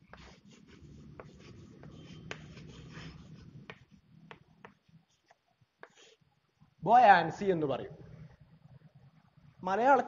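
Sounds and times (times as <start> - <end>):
chalk scratching on blackboard: 0.0 - 6.2
chalk tapping: 0.0 - 6.2.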